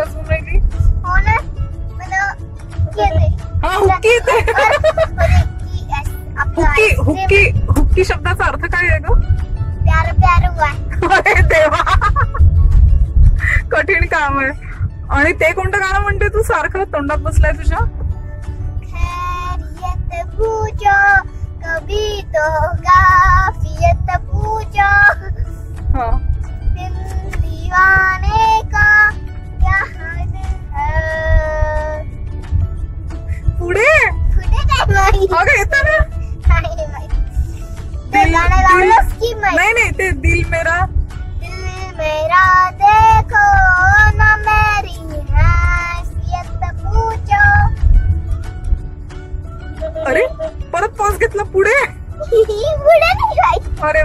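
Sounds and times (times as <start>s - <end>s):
low rumble: 0.0s - 54.0s
girl singing: 18.9s - 25.4s, 26.8s - 32.1s, 41.5s - 47.8s.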